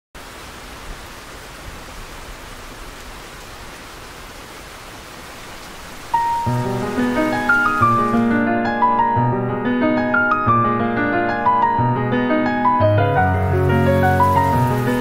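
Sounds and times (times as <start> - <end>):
steady rain falling: 0.2 - 9.1, 13.1 - 15.0.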